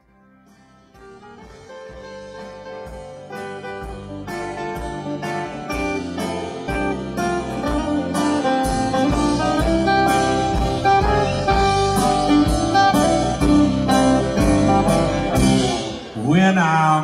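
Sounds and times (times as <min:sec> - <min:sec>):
acoustic guitar: 0:00.0 - 0:17.0
electric guitar: 0:00.0 - 0:17.0
drums keeping a steady beat: 0:01.0 - 0:16.4.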